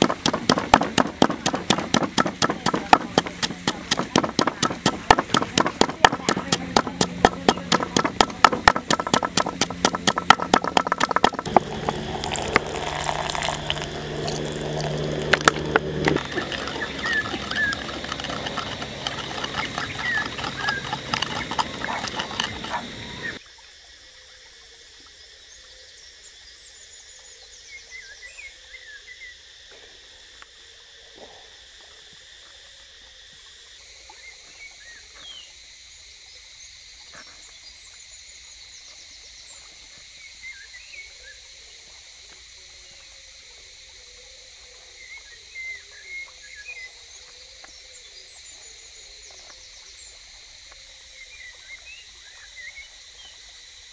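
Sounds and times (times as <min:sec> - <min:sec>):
pestle pounding in a mortar: 0:00.0 - 0:23.4
steady high drone: 0:00.1 - 0:23.4
bird chirps: 0:13.3 - 0:23.4.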